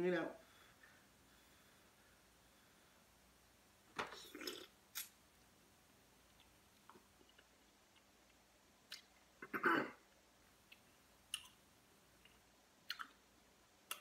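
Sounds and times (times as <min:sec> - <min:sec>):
wet mouth clicks and lip smacks: 0:08.9 - 0:09.2, 0:12.2 - 0:13.2.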